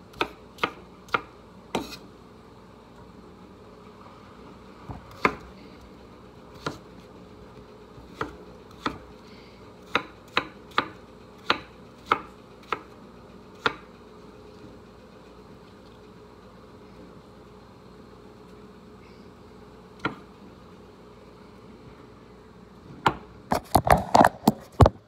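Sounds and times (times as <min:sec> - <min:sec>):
knife chopping on wooden board: 0:00.1 - 0:02.0, 0:05.0 - 0:05.5, 0:06.6 - 0:06.8, 0:08.0 - 0:09.1, 0:09.8 - 0:12.9, 0:13.6 - 0:13.8.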